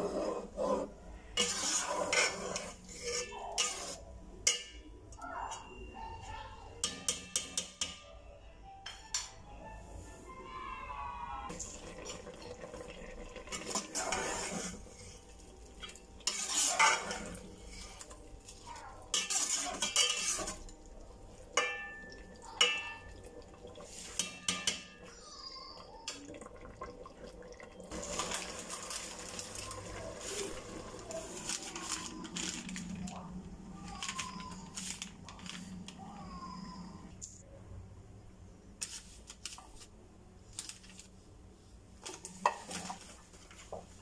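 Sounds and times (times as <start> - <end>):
ladle scraping cooking pot: 0.0 - 4.0, 13.4 - 15.2, 15.9 - 18.2, 19.1 - 20.8.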